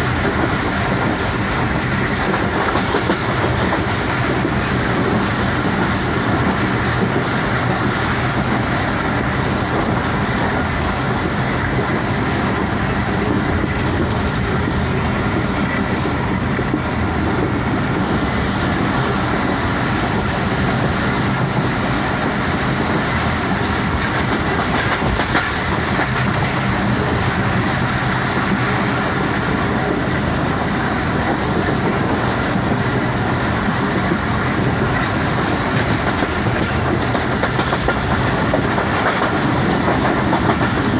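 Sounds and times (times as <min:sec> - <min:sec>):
train wheels rumbling on track: 0:00.0 - 0:40.9.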